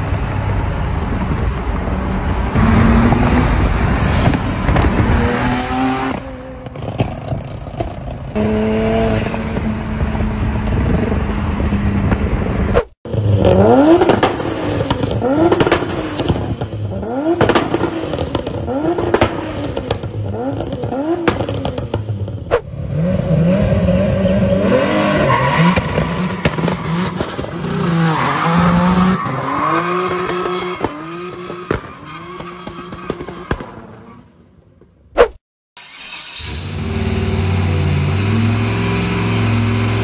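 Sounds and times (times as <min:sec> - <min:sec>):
engine at high revs: 0:02.5 - 0:06.9, 0:08.3 - 0:11.4, 0:13.1 - 0:21.8, 0:22.6 - 0:32.9, 0:36.4 - 0:40.0.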